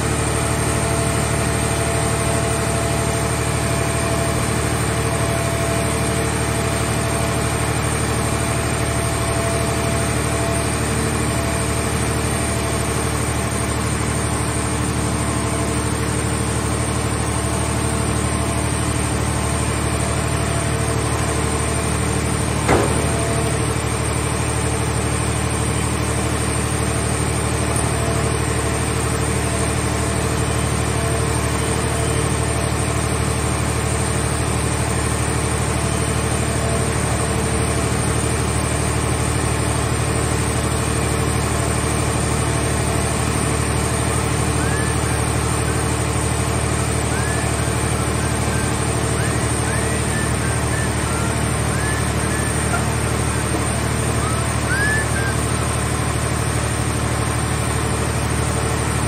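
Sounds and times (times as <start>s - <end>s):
hydraulic machinery droning: 0.0s - 59.0s
sharp metal knock: 22.7s - 23.6s.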